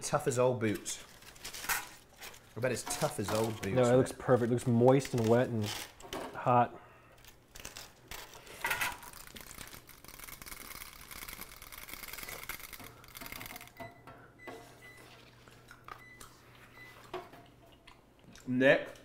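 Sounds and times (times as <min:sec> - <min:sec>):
foil rustling and crinkling: 0:00.7 - 0:03.7, 0:07.2 - 0:13.7.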